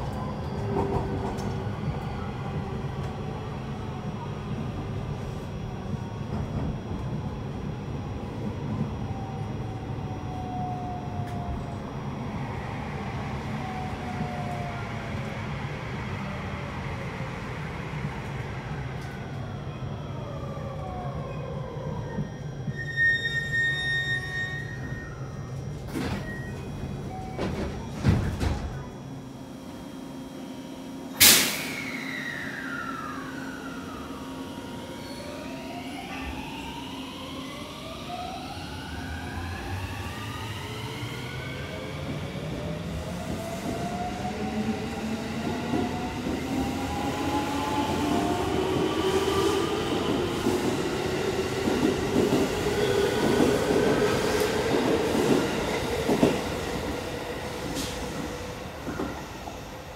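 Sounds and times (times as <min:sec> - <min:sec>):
electric train inverter whine: 0:00.0 - 0:59.9
loud sharp noise: 0:31.2 - 0:32.6.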